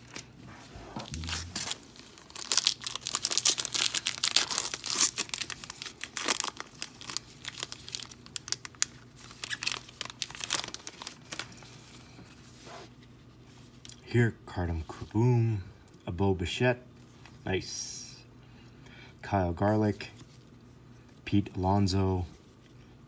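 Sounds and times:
foil wrapper tearing and crinkling: 1.2 - 11.7.

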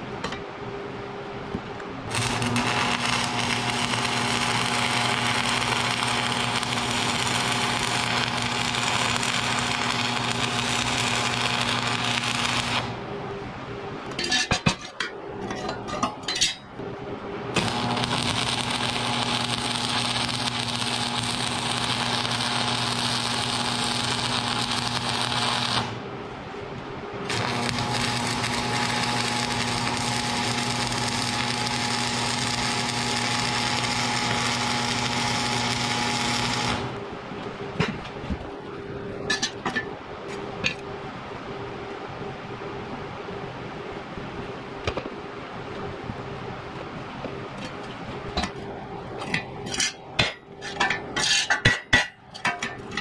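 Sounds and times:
welder low hum: 0.0 - 53.0
arc welding hiss: 2.1 - 13.0, 17.5 - 26.0, 27.3 - 37.0
metal clanks: 14.1 - 16.8, 39.3 - 40.0, 49.2 - 53.0.

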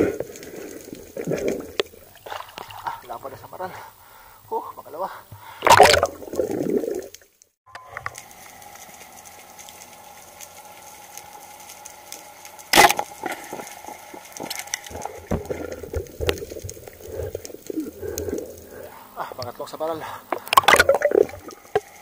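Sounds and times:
faint underwater hum: 0.0 - 22.0
speargun firing crack: 5.7 - 6.1.

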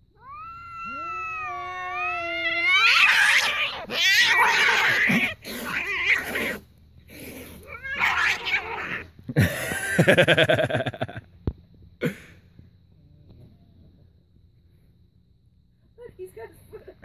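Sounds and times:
cats yowling while fighting: 0.0 - 9.1
pulsing growl-yowl: 0.2 - 9.1.

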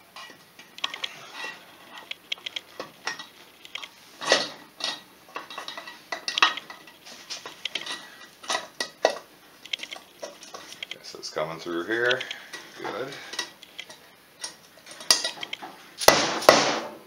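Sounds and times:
metal clinks and knocks: 13.3 - 15.7.

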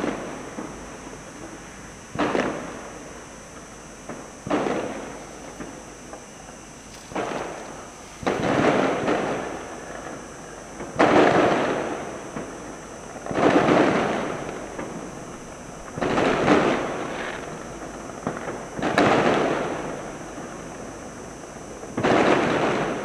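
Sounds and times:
sharp firework pops: 1.4 - 2.7, 4.0 - 10.2, 18.2 - 19.7, 22.0 - 22.9
firework booms: 2.1 - 2.8, 4.1 - 5.8, 6.9 - 10.2, 13.2 - 15.0, 15.8 - 17.2, 22.0 - 22.9.

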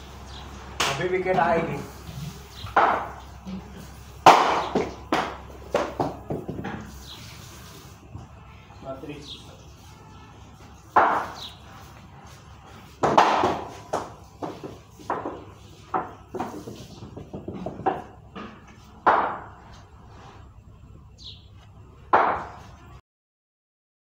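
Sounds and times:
ball bouncing on tiled floor: 2.6 - 3.5, 4.2 - 7.0, 10.9 - 11.5, 12.9 - 19.6
wooden bat hitting ball: 2.7 - 3.2, 4.2 - 6.9, 10.9 - 11.4, 13.0 - 19.6, 22.1 - 22.7.

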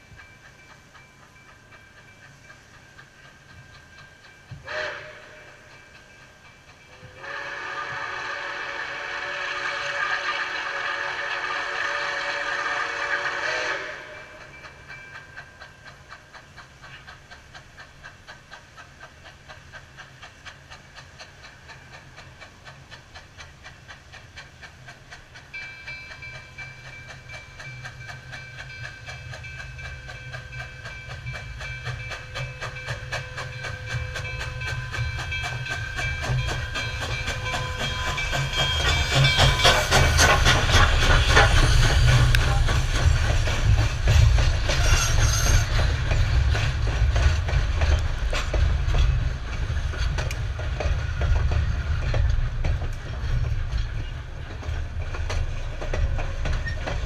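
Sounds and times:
steam locomotive exhaust beat: 0.0 - 57.0
steam whistle: 4.6 - 5.6, 6.9 - 14.5, 44.7 - 45.9.

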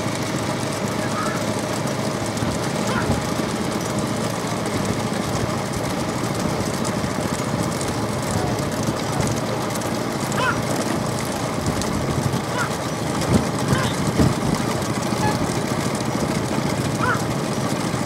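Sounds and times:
road noise: 0.0 - 18.0
vehicle engine running: 0.0 - 18.0.

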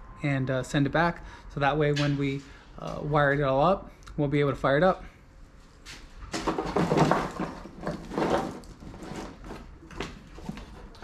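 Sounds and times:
wiring harness rustling and clattering: 5.9 - 11.0.

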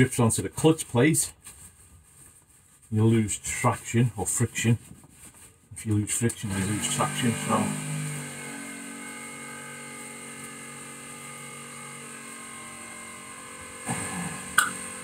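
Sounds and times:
machine hum: 6.6 - 15.0.

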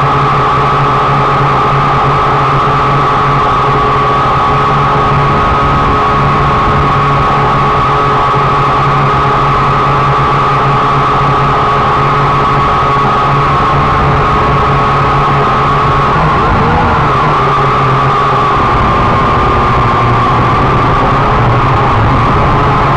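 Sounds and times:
drone motors whining: 11.2 - 22.9.

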